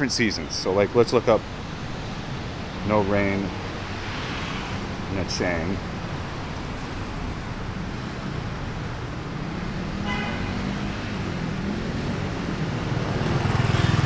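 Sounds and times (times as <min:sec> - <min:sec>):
cars on a wet road: 0:00.0 - 0:14.0
car horn toot: 0:10.0 - 0:10.7.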